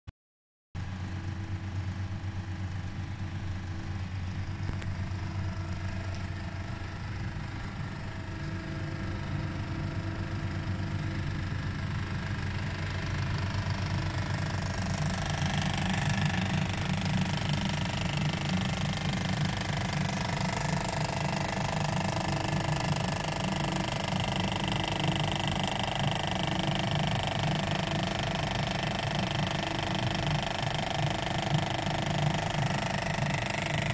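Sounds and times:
mechanical buzzing rattle: 0:07.8 - 0:33.9.

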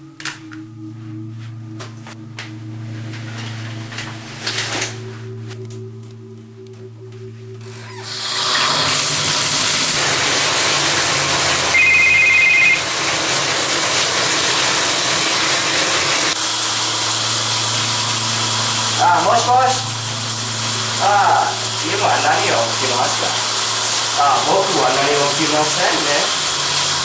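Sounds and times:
steady low hum: 0:00.0 - 0:08.0, 0:16.6 - 0:24.1
water running from bathtub faucet: 0:07.8 - 0:27.0
phone ringing two-tone beep: 0:11.7 - 0:12.8.

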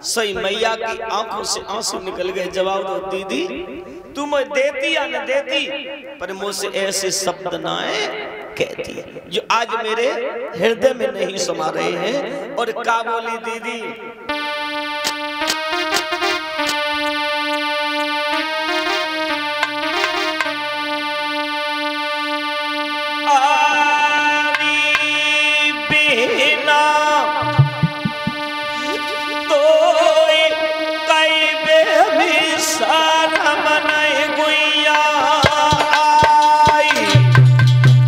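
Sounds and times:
electronic keyboard melody: 0:13.9 - 0:37.7
man singing: 0:23.3 - 0:27.7, 0:29.5 - 0:37.5.

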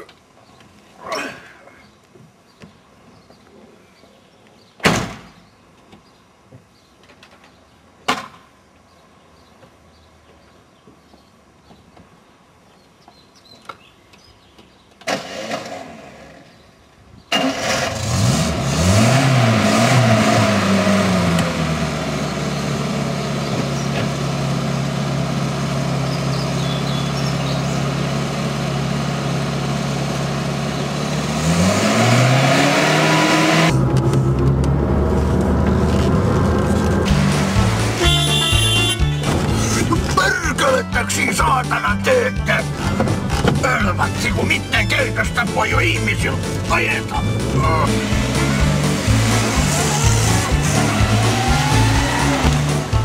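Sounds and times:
car engine starting and revving: 0:17.3 - 0:40.8, 0:41.8 - 0:53.0.

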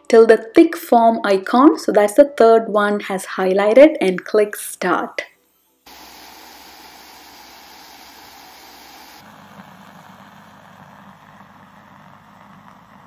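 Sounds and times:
milk frother whirring: 0:05.9 - 0:13.0.

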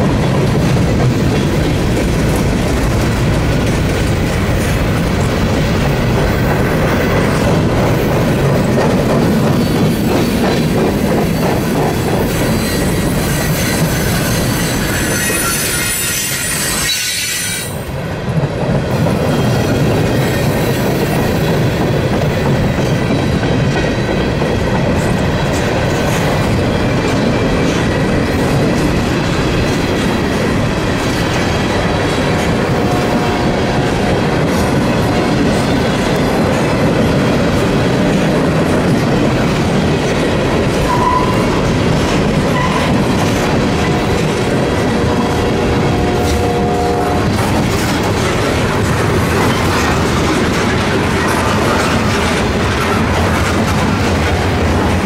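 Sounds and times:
freight train wheels rumbling: 0:00.0 - 0:55.0
high-pitched squeal: 0:12.5 - 0:17.9.

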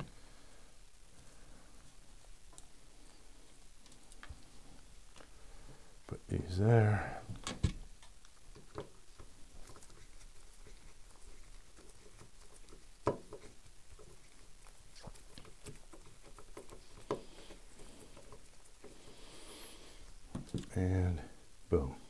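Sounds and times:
faint rustling of gloved hands: 0:00.0 - 0:22.0
small clicks and taps: 0:11.8 - 0:19.1.

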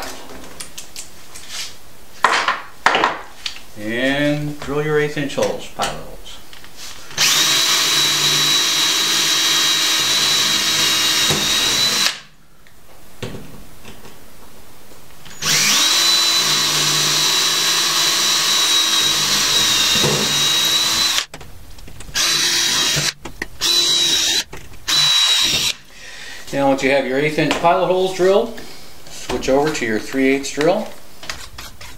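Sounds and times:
cordless drill whine: 0:07.2 - 0:12.2, 0:15.3 - 0:21.3, 0:22.2 - 0:25.8.

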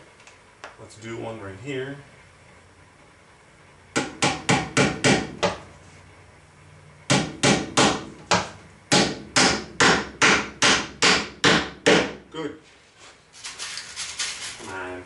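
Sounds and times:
hammer driving nails into wood: 0:04.0 - 0:05.6, 0:07.1 - 0:12.2.

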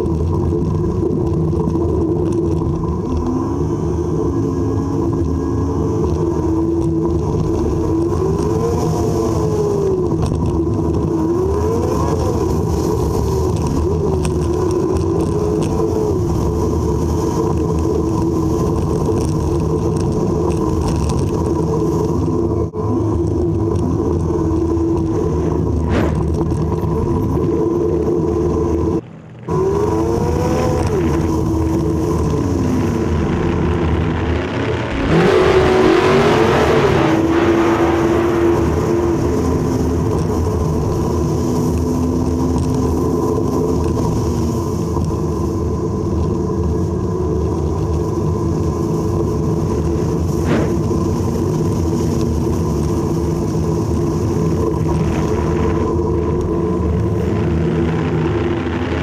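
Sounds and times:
car engine revving: 0:00.0 - 0:59.0
wind rush: 0:23.4 - 0:59.0.

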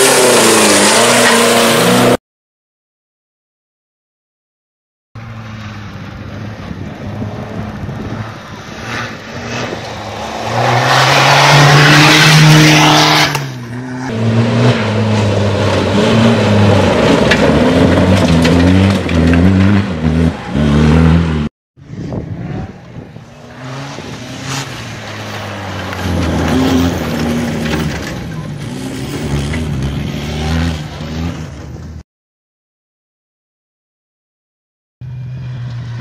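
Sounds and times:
race car engine revving: 0:06.7 - 0:21.5.

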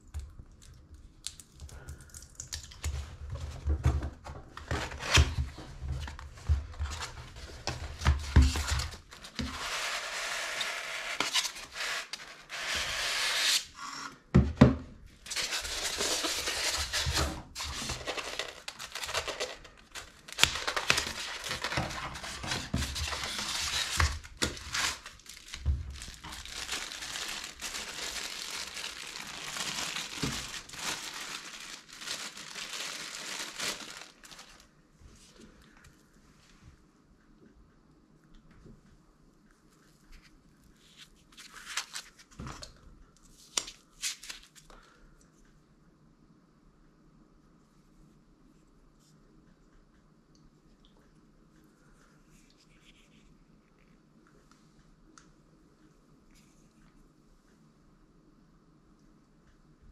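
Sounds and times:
styrofoam pulled apart: 0:09.4 - 0:13.8
plastic wrapping crinkling: 0:15.2 - 0:34.7.

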